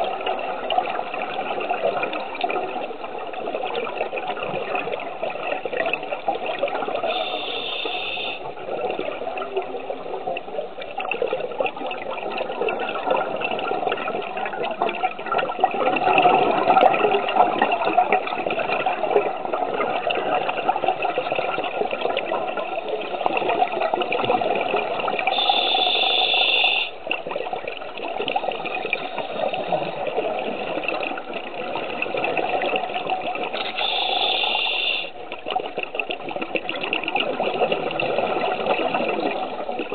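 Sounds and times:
scuba regulator bubbling exhale: 5.7s - 9.1s, 15.6s - 39.9s.

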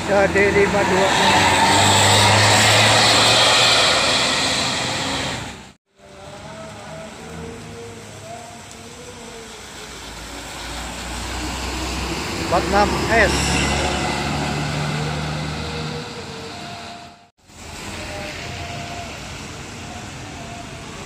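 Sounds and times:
bus approaching: 0.0s - 21.0s
rain: 0.0s - 21.0s
tyre hiss on wet road: 2.8s - 5.7s, 17.4s - 20.1s.

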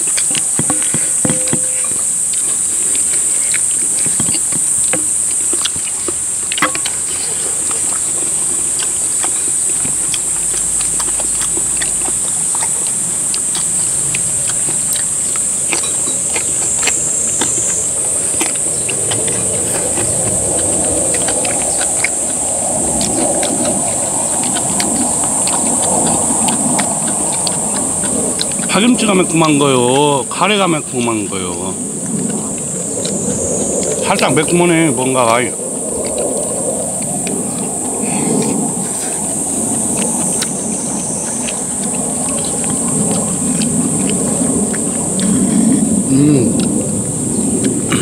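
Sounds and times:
insects droning: 0.0s - 48.0s
low rumble: 6.2s - 28.6s.

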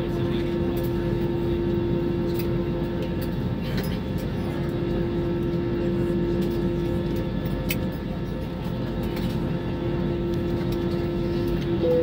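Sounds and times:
constant low hum: 0.0s - 12.0s
jet engines idling rumble: 0.0s - 12.0s.

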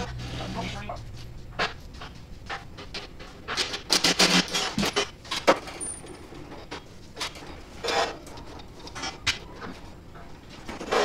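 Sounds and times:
metal parts clanking and rattling: 3.5s - 9.5s.

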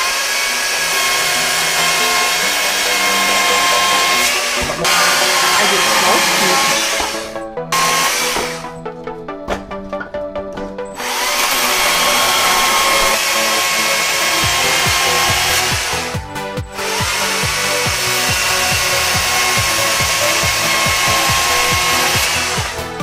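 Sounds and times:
battery chainsaw cutting logs: 0.0s - 8.8s, 11.0s - 23.0s
background music with steady beat: 0.0s - 23.0s.

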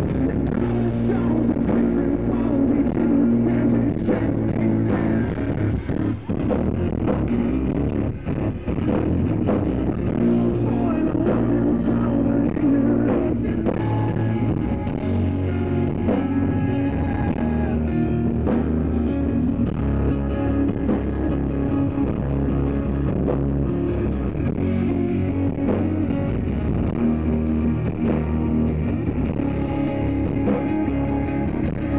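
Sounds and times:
person singing: 0.0s - 6.2s, 10.1s - 22.2s
rock band playing live: 0.0s - 31.9s.

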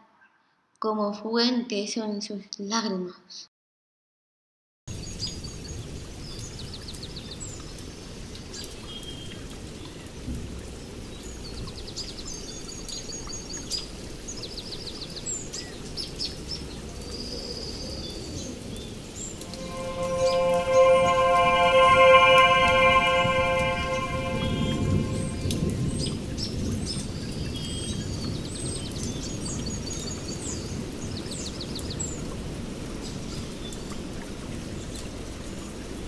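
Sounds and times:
rushing rain-like noise: 4.9s - 19.3s, 26.6s - 36.0s
held musical chord: 19.4s - 26.0s.

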